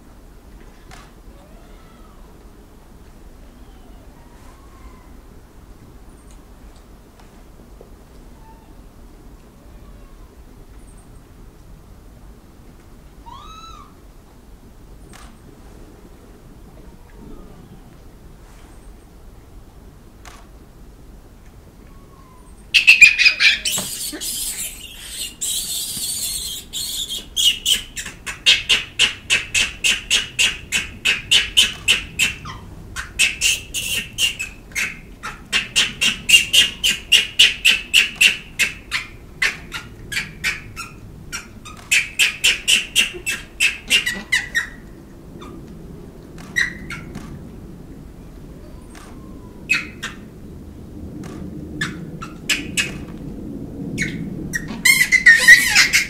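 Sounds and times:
monkeys giving shrill calls: 13.2s - 14.0s, 22.2s - 44.8s, 46.6s - 47.1s, 48.7s - 50.2s, 51.8s - 53.0s, 54.0s - 56.0s.

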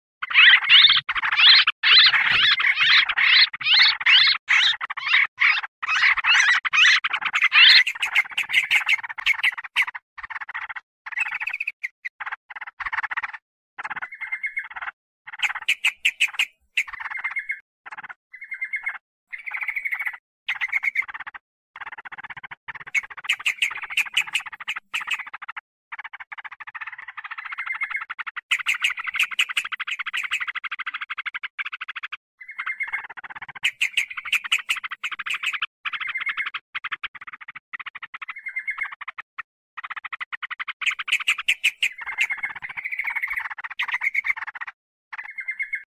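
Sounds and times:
bulbuls harsh chattering: 0.2s - 9.9s, 15.4s - 17.4s, 22.8s - 25.3s, 28.5s - 30.5s, 40.8s - 44.2s.

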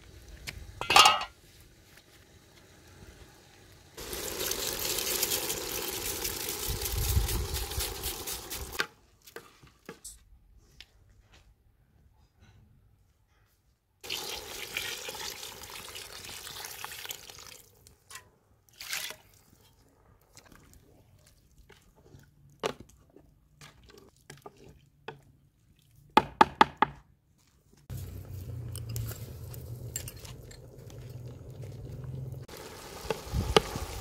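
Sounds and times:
water pouring into pot: 4.0s - 8.8s, 14.0s - 17.7s, 28.9s - 34.0s.

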